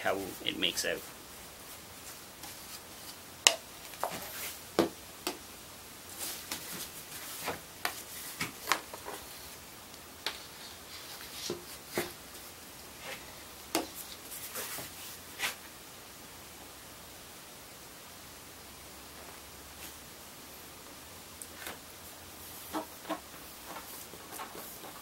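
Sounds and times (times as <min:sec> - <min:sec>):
soft rubbing: 0:01.0 - 0:03.2, 0:10.3 - 0:15.6.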